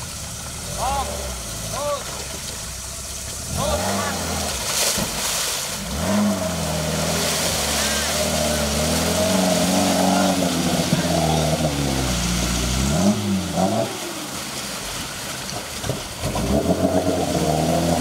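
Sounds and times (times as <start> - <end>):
engine revving under load: 3.4 - 14.7, 15.8 - 18.0.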